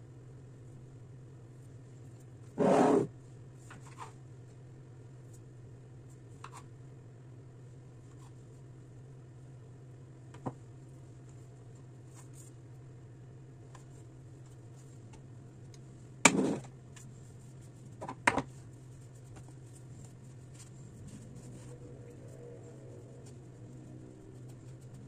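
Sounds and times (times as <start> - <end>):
low steady hum: 0.0 - 25.0.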